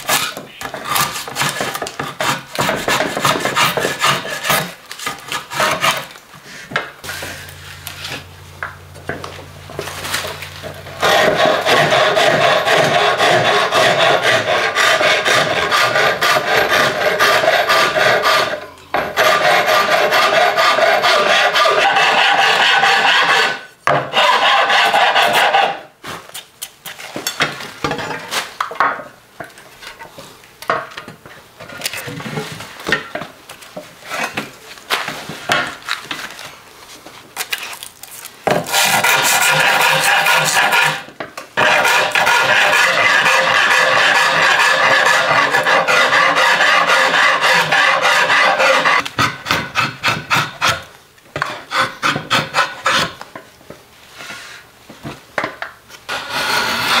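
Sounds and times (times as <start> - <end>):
hand rasp filing wood: 0.1 - 6.1, 10.9 - 25.8, 38.7 - 53.2, 56.1 - 57.0.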